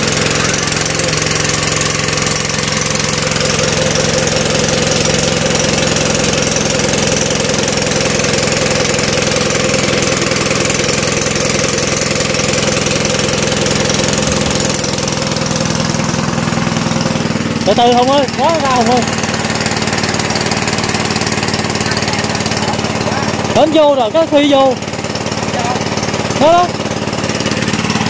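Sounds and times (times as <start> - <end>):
small engine running steadily: 0.0 - 28.0.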